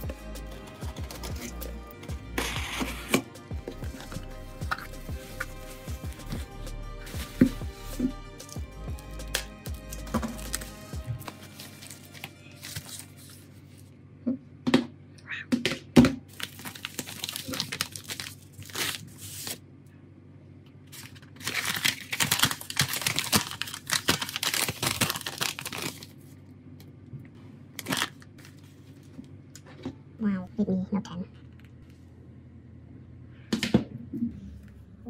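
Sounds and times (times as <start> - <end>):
crackling tearing noise: 16.3 - 19.6, 20.9 - 26.2.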